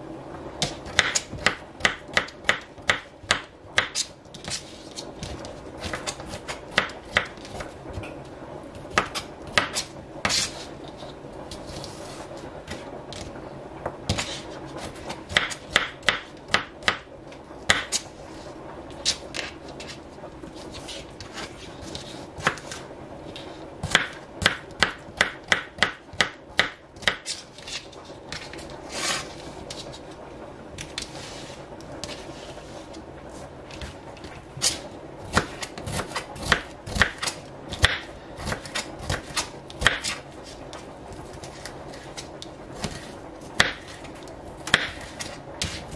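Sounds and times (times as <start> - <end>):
knife chopping on cutting board: 0.6 - 4.6, 14.1 - 17.0, 17.7 - 18.0, 34.6 - 40.2, 44.6 - 45.9.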